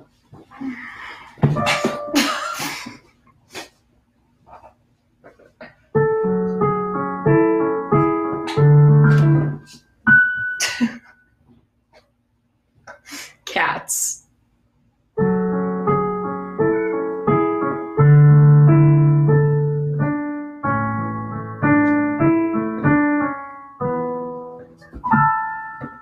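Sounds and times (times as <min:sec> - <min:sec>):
piano chords on keyboard: 0:01.4 - 0:02.6, 0:06.0 - 0:11.1, 0:15.2 - 0:26.0.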